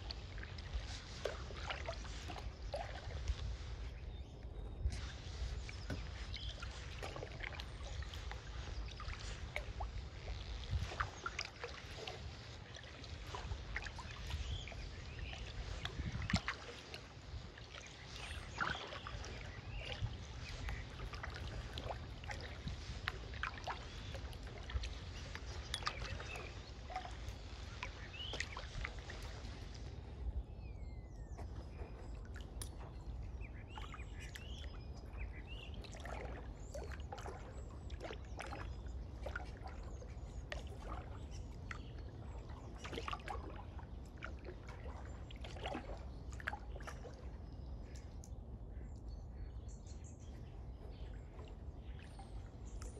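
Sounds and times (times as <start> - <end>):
steady low rumble: 0.0 - 35.8
paddle strokes in water: 0.0 - 48.9.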